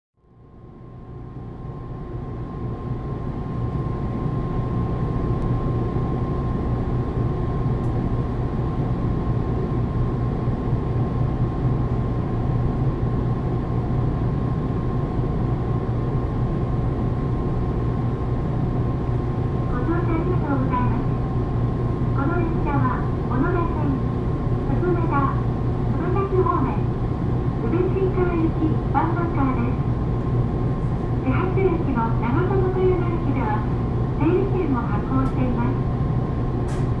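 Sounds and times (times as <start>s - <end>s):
electric railcar equipment humming: 0.2s - 37.0s.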